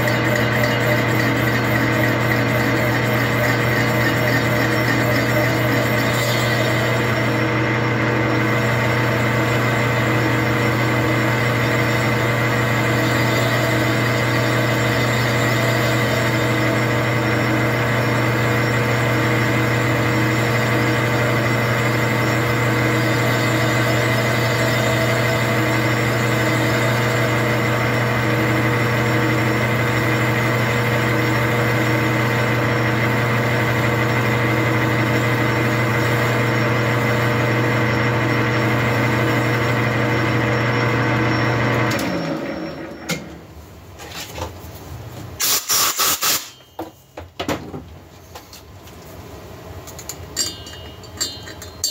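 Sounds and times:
metal lathe humming: 0.0 - 42.9
short loud hissing bursts: 45.4 - 46.5.

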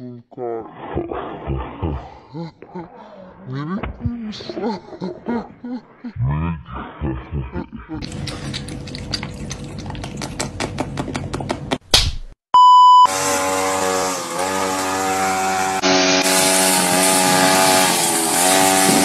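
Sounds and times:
cat lapping water: 8.0 - 11.3
string trimmer engine revving: 13.1 - 19.0.

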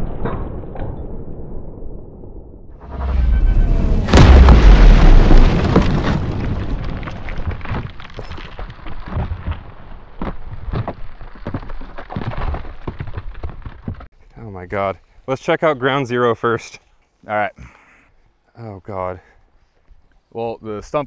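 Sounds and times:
explosion with deep boom: 0.0 - 10.1
scattered sharp cracks and thuds: 4.1 - 14.1.

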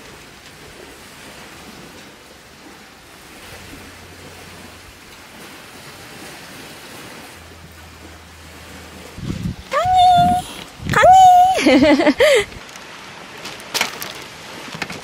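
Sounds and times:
rushing outdoor ambient noise: 0.0 - 15.0.

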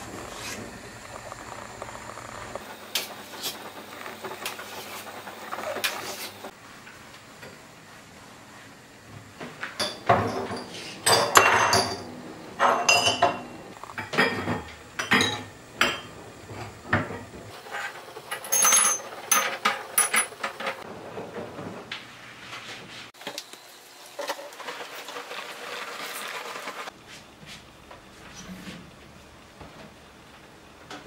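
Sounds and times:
glasses and dishes clinking: 9.8 - 16.1, 18.4 - 20.4.

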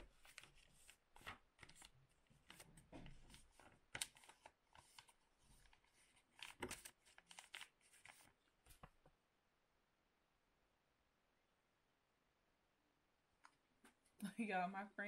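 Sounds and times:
paper and envelopes rustling: 0.0 - 9.1.

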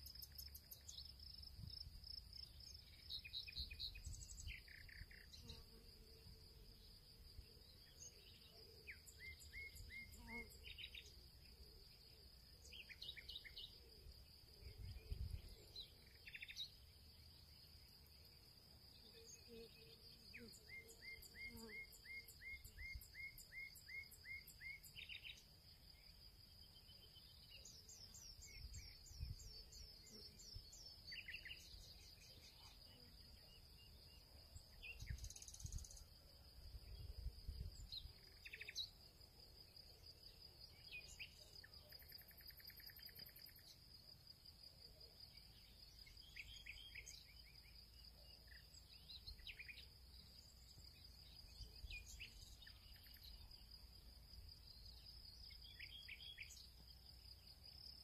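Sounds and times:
bird chirps: 45.4 - 49.9, 54.8 - 56.8.

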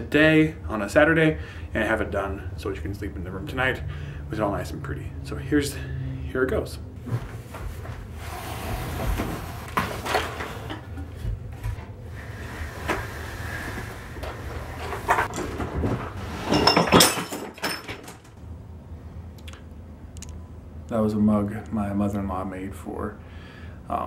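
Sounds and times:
wooden furniture knocks and scrapes: 7.0 - 12.0, 12.7 - 18.0.

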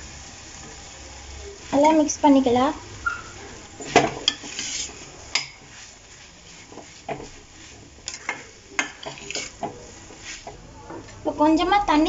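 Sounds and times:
metal spatula scraping steel pan: 3.8 - 10.5.

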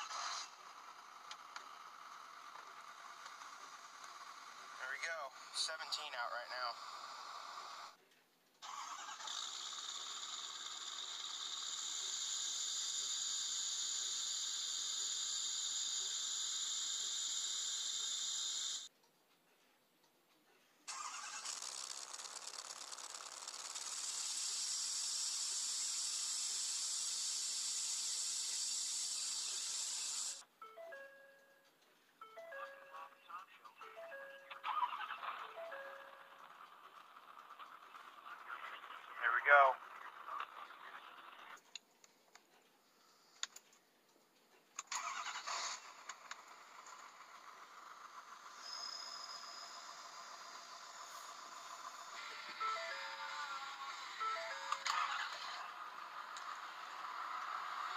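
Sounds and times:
diesel engine starting and idling: 0.0 - 8.0, 8.6 - 18.9, 20.9 - 30.4, 33.9 - 39.2, 44.8 - 57.9
hissing rush of exhaust gas: 8.8 - 18.9, 23.6 - 30.4.

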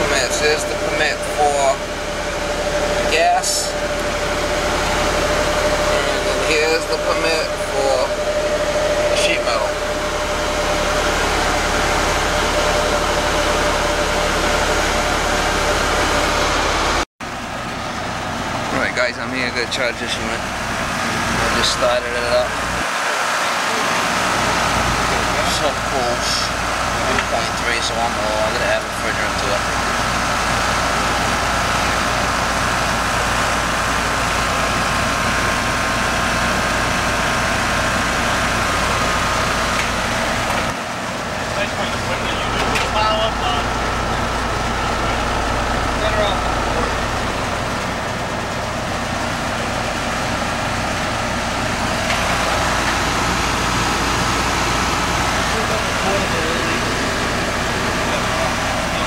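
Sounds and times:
low hum: 0.0 - 18.6
air conditioner unit running: 0.0 - 59.0.

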